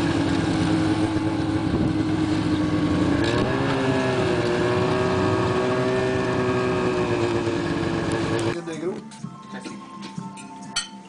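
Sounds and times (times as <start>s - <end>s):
snowmobile engines droning: 0.0s - 8.6s.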